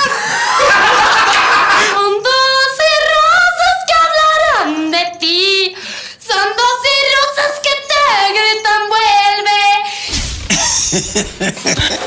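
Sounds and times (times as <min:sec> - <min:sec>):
woman singing: 0:01.9 - 0:09.9.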